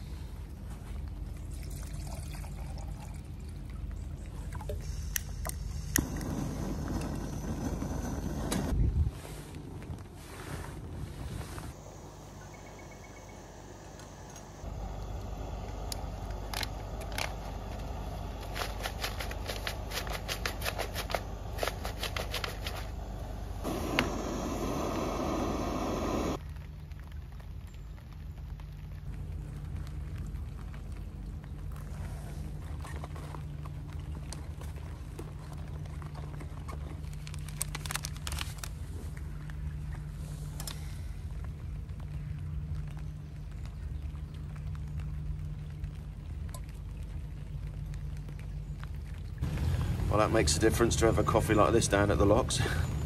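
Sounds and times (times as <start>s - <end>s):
steady low hum: 0.0s - 53.0s
foil pouch crinkling: 16.4s - 23.2s, 32.4s - 39.7s
sachet tearing open with crackles: 32.5s - 39.9s.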